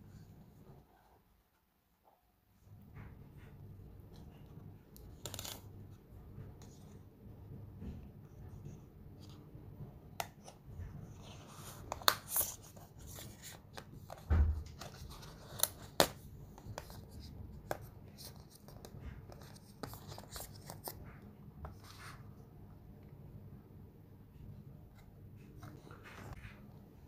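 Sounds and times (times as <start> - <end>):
paperboard packaging rustling: 11.2 - 21.1
low thump: 14.3 - 14.8.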